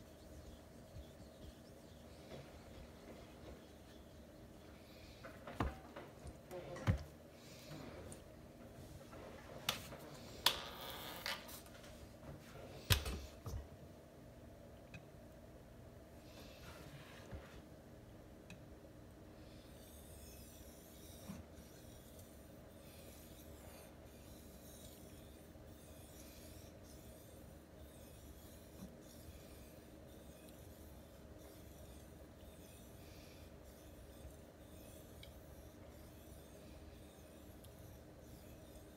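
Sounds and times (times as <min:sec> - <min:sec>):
knife scraping on whetstone: 0:19.8 - 0:38.9.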